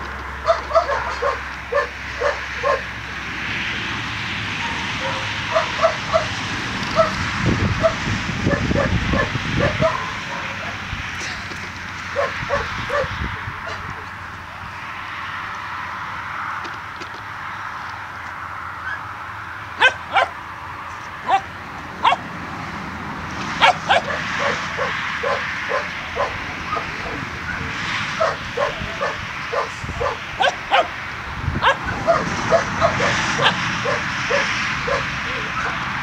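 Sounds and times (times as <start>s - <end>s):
puppy yapping: 0.4s - 2.9s, 4.6s - 6.4s, 12.2s - 13.9s, 19.8s - 20.4s, 21.2s - 22.3s, 23.6s - 31.0s, 31.6s - 35.8s.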